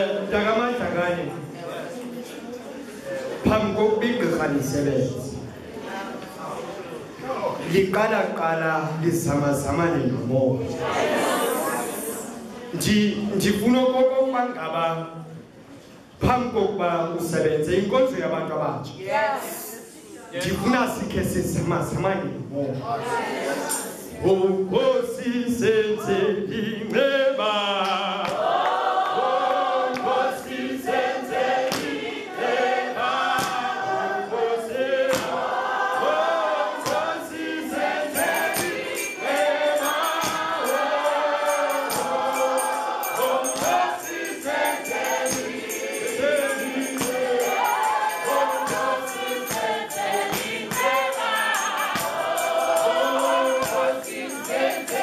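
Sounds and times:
congregation singing: 0:00.0 - 0:15.4, 0:22.8 - 0:55.0
rhythmic hand claps: 0:27.7 - 0:33.9, 0:34.9 - 0:55.0
tambourine jingle: 0:36.1 - 0:55.0.

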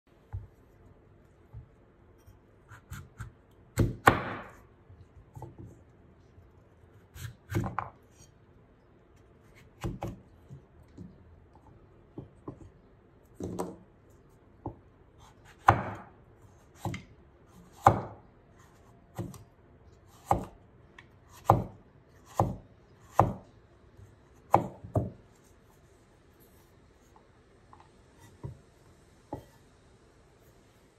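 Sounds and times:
knife cutting pumpkin: 0:01.5 - 0:05.7.

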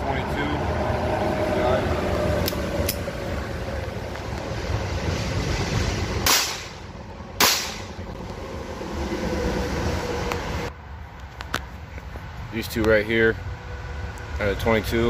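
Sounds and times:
pistol shots: 0:06.2 - 0:06.8, 0:07.4 - 0:07.9.

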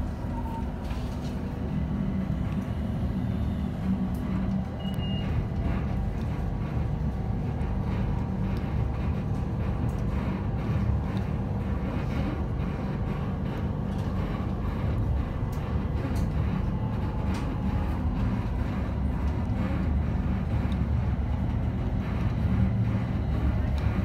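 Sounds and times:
electric train rumble: 0:00.0 - 0:24.0
faint beep: 0:04.8 - 0:05.3.

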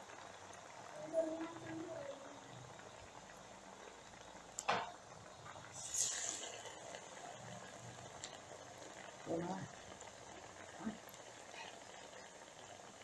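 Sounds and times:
oil sizzling and bubbling: 0:00.0 - 0:13.0
sharp hiss burst: 0:05.8 - 0:06.6.

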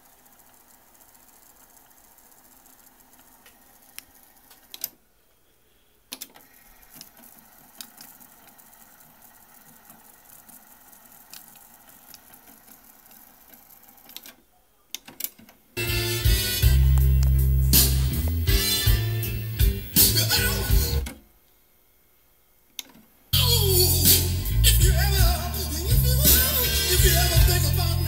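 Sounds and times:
cassette tape transport whirring: 0:00.0 - 0:05.0, 0:06.1 - 0:14.4, 0:15.1 - 0:21.3, 0:23.7 - 0:28.0.

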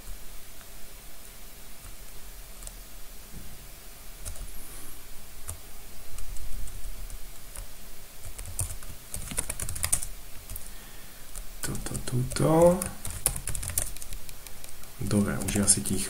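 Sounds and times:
computer keyboard typing: 0:04.2 - 0:04.5, 0:06.2 - 0:10.6, 0:11.7 - 0:15.7.

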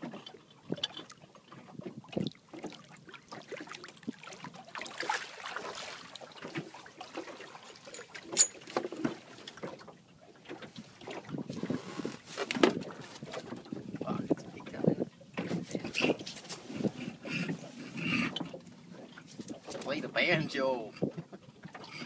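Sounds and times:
water splashing: 0:00.0 - 0:14.9.

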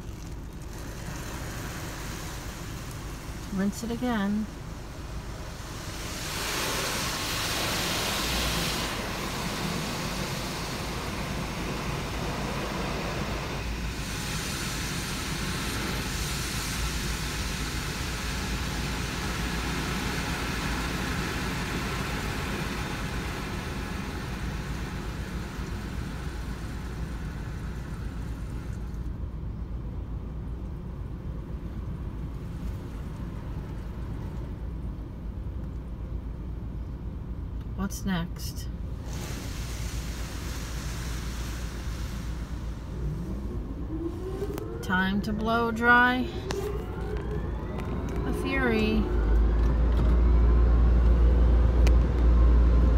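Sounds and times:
water spraying over car: 0:00.0 - 0:29.1, 0:38.8 - 0:47.0
steady low rumble: 0:00.0 - 0:52.9.

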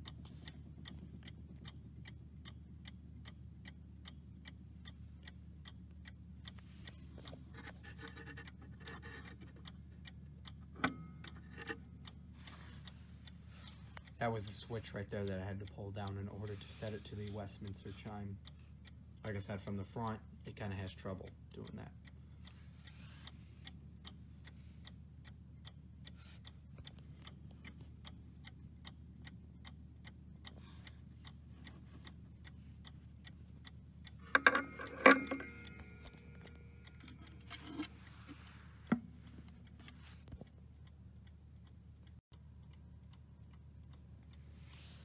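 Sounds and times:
clock ticking: 0:00.0 - 0:44.5
metallic tones ringing: 0:34.3 - 0:37.8.

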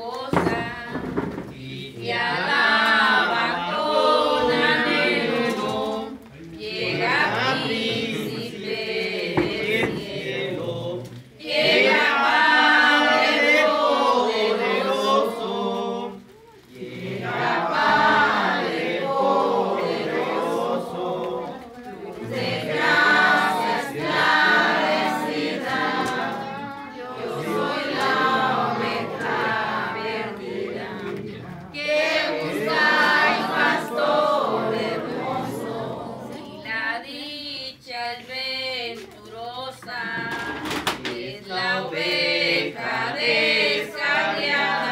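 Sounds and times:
group singing a hymn: 0:00.0 - 0:44.9.

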